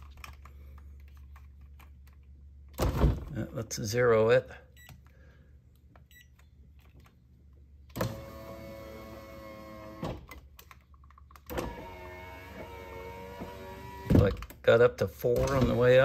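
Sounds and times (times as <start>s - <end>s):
power window motor running: 8.0s - 10.2s, 11.5s - 14.2s.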